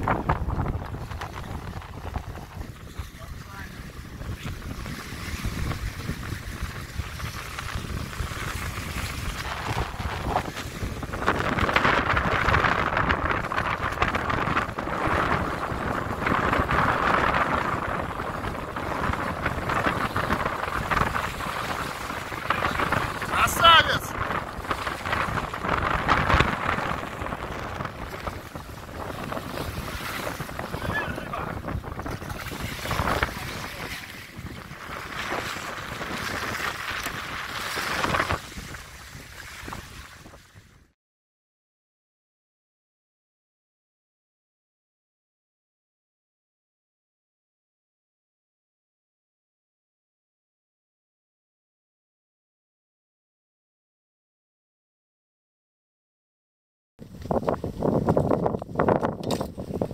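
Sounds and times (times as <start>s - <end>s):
waves splashing against bank: 0.0s - 40.7s
wind buffeting microphone: 0.0s - 41.0s, 57.0s - 59.9s.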